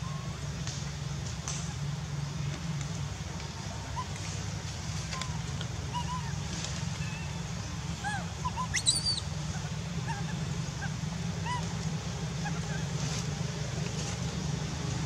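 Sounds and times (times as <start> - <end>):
animal chirping calls: 8.0 - 11.7.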